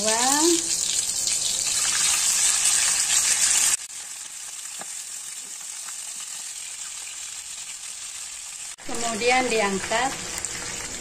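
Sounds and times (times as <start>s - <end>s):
chicken sizzling in hot oil: 0.0s - 11.0s.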